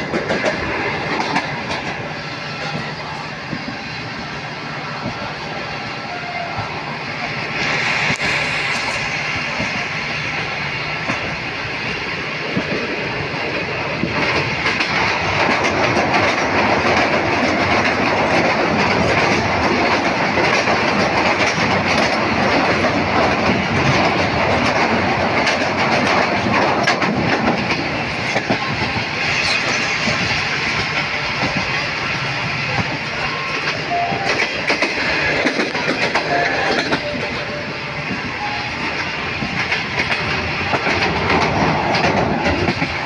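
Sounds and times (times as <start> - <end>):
wheels clicking over rails: 0.0 - 2.1, 12.4 - 31.8, 33.6 - 37.5, 39.0 - 43.0
train wheels rushing on track: 0.0 - 43.0.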